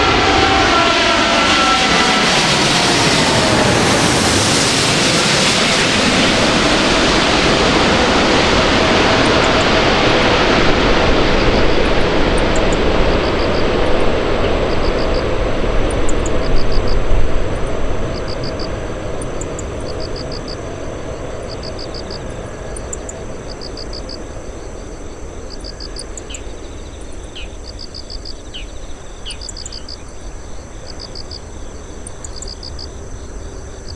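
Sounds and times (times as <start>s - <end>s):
jet airliner rumble: 0.0s - 33.9s
insects chirping in trills: 11.4s - 33.9s.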